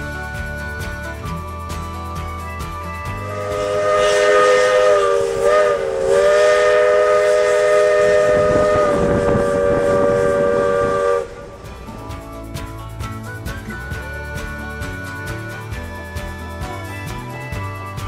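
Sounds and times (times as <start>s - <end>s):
steam locomotive chime whistle: 0.0s - 12.4s
steam hissing: 1.2s - 18.0s.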